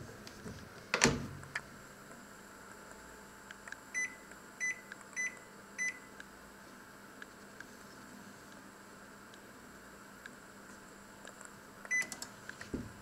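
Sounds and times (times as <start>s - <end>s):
microwave oven beeps: 3.9s - 6.1s, 11.9s - 12.2s.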